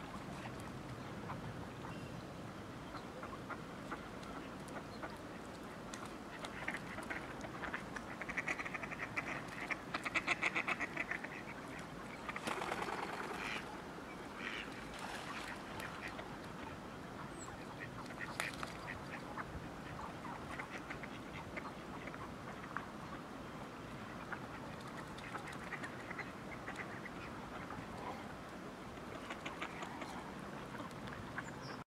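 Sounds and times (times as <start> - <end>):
ducks quacking: 6.3 - 16.7, 29.0 - 31.6.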